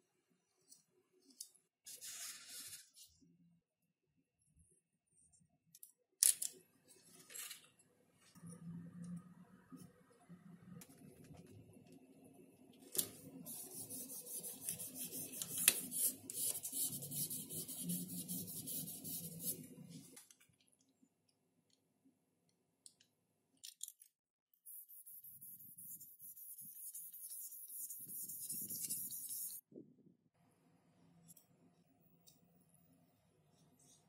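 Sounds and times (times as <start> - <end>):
tape rubbing on foam board: 13.5 - 19.6, 24.7 - 29.6.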